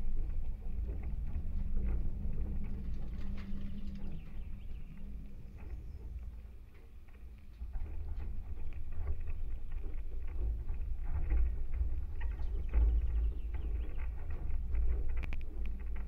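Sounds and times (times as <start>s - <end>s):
deep rumbling drone: 0.0s - 16.0s
small creaks and taps: 5.6s - 16.0s.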